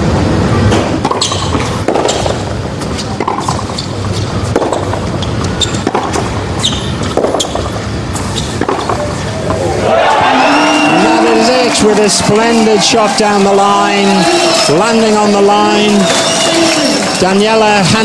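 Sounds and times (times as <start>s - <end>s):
tennis ball bouncing: 0.7s - 9.6s
tennis racket hitting ball: 0.8s - 9.1s.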